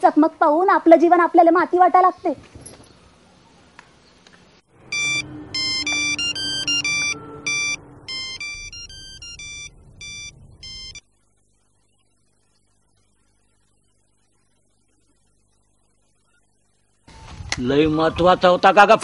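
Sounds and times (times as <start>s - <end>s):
phone ringtone beeps: 4.8s - 11.0s.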